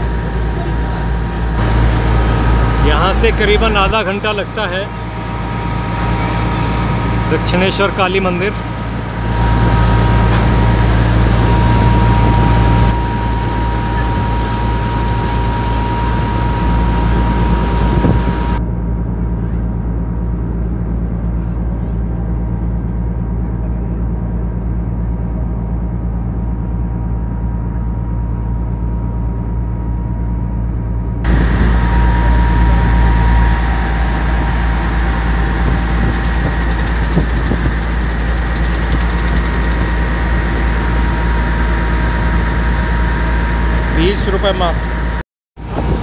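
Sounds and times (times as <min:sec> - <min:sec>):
ferry engine droning: 0:00.0 - 0:46.0
faint steady whistle: 0:31.6 - 0:36.9.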